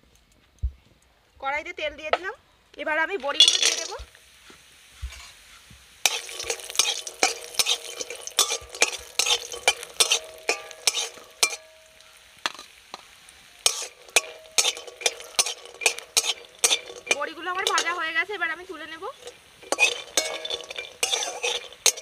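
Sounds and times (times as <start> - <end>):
dumplings sizzling in oil: 1.4 - 22.0
metal spatula scraping a pan: 5.1 - 22.0.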